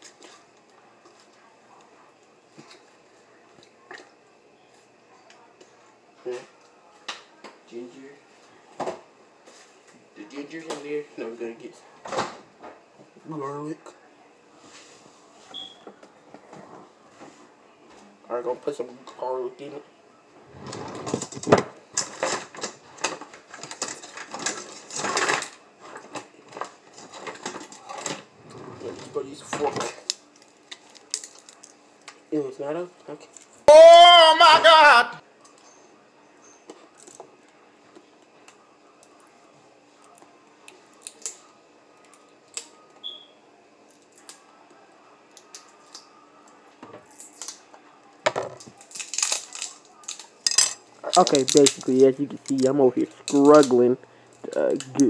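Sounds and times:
scraping and rattling: 20.4 - 26.1.

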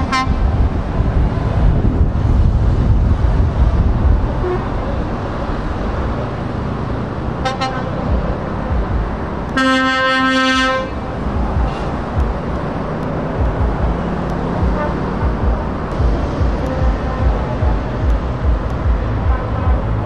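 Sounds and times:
truck horn blast: 0.0 - 0.5, 4.4 - 5.0, 7.3 - 8.4, 9.5 - 12.2, 13.7 - 20.0
truck horn toots: 0.0 - 0.5, 4.4 - 4.9, 7.4 - 8.4, 9.5 - 11.1, 13.7 - 20.0
diesel truck engines rumbling: 0.0 - 20.0.

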